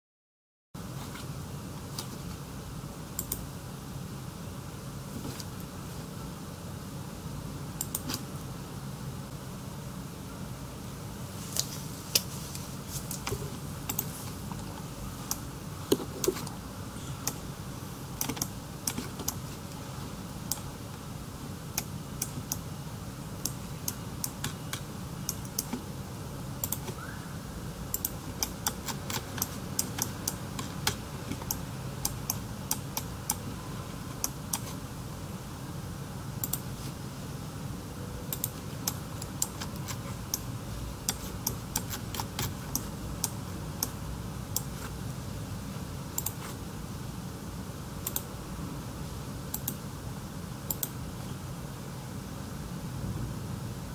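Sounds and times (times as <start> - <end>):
steady low hum: 0.8 - 53.9
computer keyboard and mouse clicking: 3.2 - 3.4, 7.8 - 8.2, 13.1 - 14.1, 18.2 - 19.4, 23.4 - 25.8, 26.6 - 27.0, 27.9 - 33.4, 36.4 - 36.7, 38.3 - 44.0, 46.2 - 46.6, 48.0 - 48.3, 49.5 - 49.8, 50.7 - 51.0.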